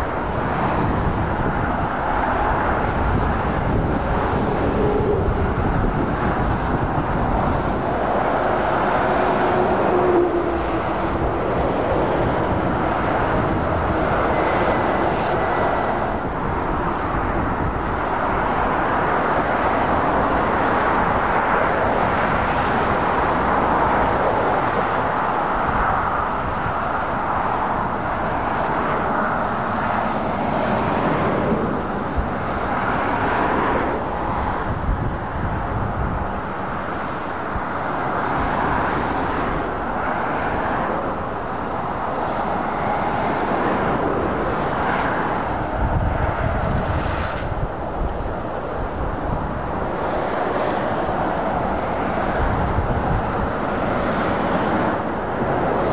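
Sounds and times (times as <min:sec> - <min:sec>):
traffic passing: 0:00.0 - 0:55.9.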